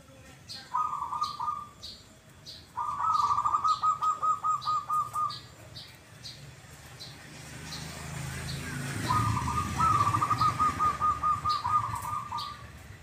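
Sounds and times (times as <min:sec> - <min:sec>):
high-pitched bird chirp: 0:00.5 - 0:06.4, 0:08.5 - 0:12.8
dove cooing: 0:00.7 - 0:01.8, 0:02.8 - 0:05.5, 0:08.9 - 0:12.9.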